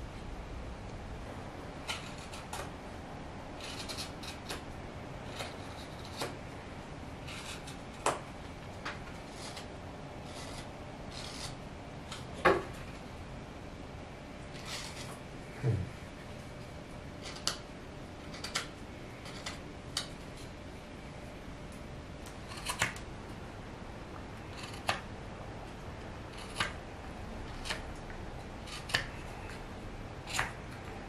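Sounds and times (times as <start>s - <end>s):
knife scraping wood: 1.8s - 2.7s, 3.6s - 6.4s, 7.2s - 8.2s, 8.8s - 12.6s, 14.5s - 15.8s, 17.2s - 17.6s, 18.2s - 20.4s, 22.4s - 23.0s, 24.5s - 25.0s, 26.3s - 26.8s, 27.5s - 27.9s, 28.6s - 29.6s, 30.2s - 30.6s.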